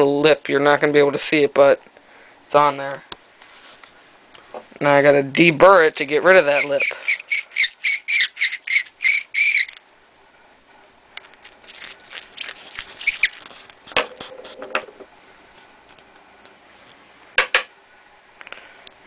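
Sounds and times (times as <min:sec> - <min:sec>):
squeaky scraping of deburring tool: 0:06.5 - 0:09.8.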